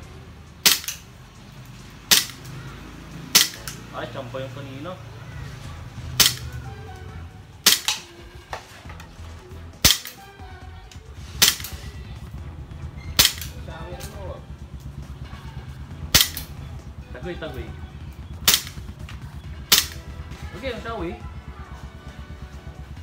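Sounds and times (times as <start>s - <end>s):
airsoft pistol shots: 0.6s - 1.1s, 2.1s - 2.5s, 3.3s - 3.8s, 6.2s - 6.6s, 7.6s - 8.2s, 9.8s - 10.2s, 11.4s - 11.9s, 13.2s - 13.6s, 16.1s - 16.5s, 18.4s - 18.8s, 19.7s - 20.0s.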